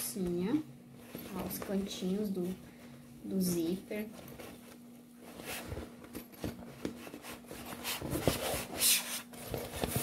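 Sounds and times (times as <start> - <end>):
bag lining rustling and crinkling: 1.0 - 2.5.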